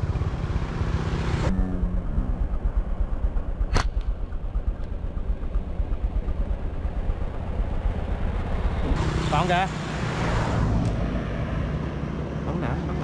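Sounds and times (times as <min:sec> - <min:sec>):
motorbike engine running: 0:00.0 - 0:09.6
sharp click: 0:03.7 - 0:04.2.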